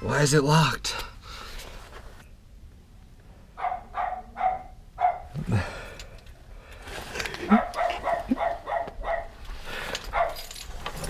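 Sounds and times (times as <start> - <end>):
dog barking: 3.6 - 5.4, 7.5 - 9.4, 10.1 - 10.4.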